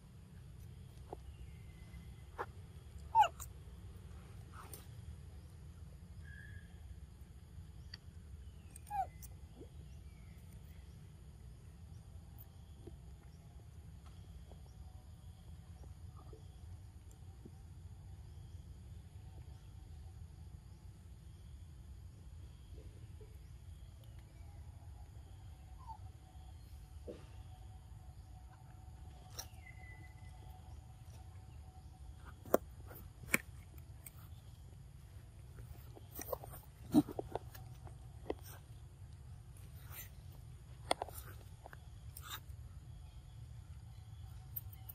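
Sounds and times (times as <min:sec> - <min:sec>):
faint low outdoor rumble: 0:00.0 - 0:44.9
high animal squeak: 0:03.1 - 0:03.5.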